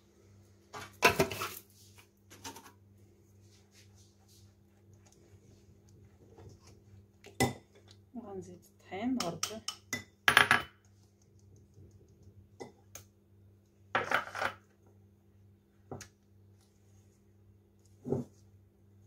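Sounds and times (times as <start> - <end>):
faint steady hum: 0.0 - 19.0
metal spoon knocking on sieve and bowl: 9.2 - 10.7.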